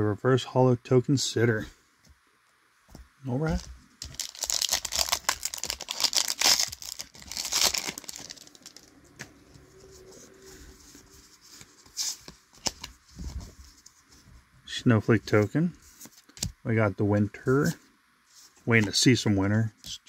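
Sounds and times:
handling cards: 2.9 - 14.3
foil wrapper tearing and crinkling: 4.0 - 8.9.

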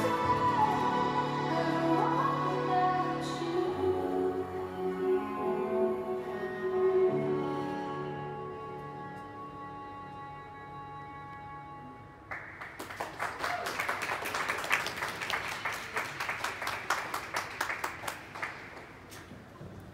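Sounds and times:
music with held notes: 0.0 - 12.4
audience applause: 12.3 - 19.1.

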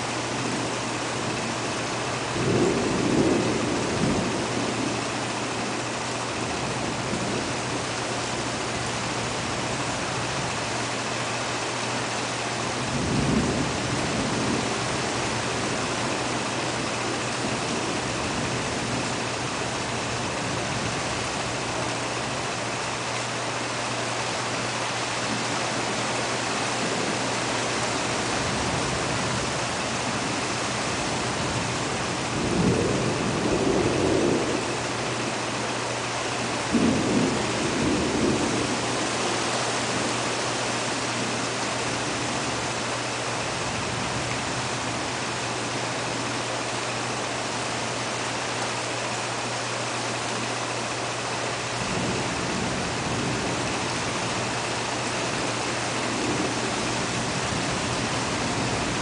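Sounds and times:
heavy rain: 0.0 - 59.0
thunder rumbling: 2.1 - 5.8, 12.7 - 22.5, 25.4 - 35.5, 36.4 - 45.7, 51.7 - 59.0.

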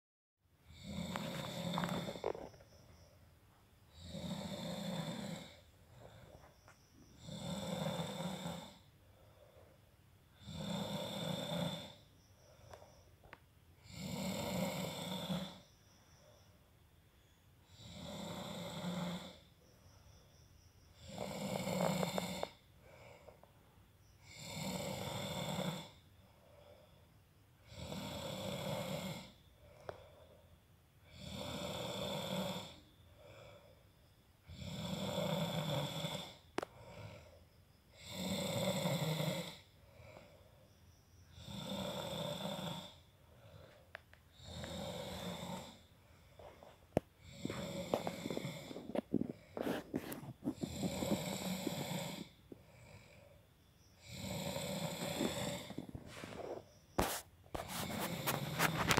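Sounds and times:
man snoring: 0.6 - 2.6, 3.9 - 6.4, 7.1 - 8.9, 10.4 - 12.1, 13.8 - 15.7, 17.7 - 19.5, 21.0 - 23.2, 24.2 - 26.0, 27.6 - 30.0, 31.1 - 33.7, 34.4 - 40.4, 41.3 - 43.1, 44.4 - 46.5, 47.2 - 53.4, 54.0 - 58.9.

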